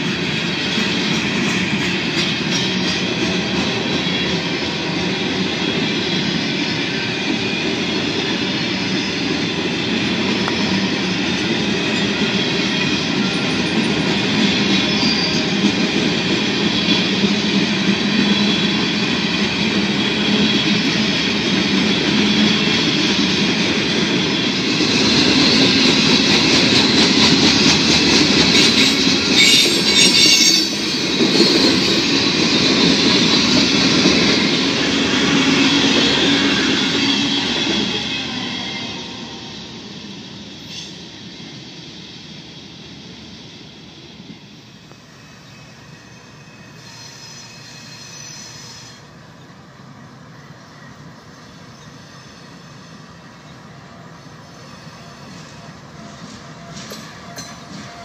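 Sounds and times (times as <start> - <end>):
train wheels on rail: 0.0 - 58.0
rail joints clicking: 55.3 - 58.0.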